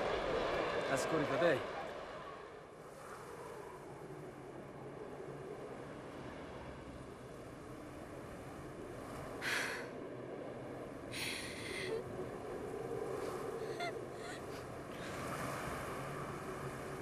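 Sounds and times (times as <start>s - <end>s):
faint breath sounds: 9.3s - 10.1s, 11.1s - 16.3s
person gasping: 11.2s - 12.0s.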